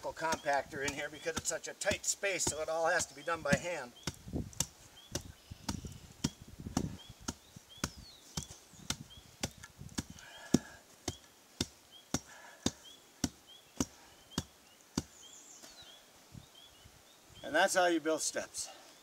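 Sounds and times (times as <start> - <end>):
hand tamper pounding gravel: 0.0 - 14.5.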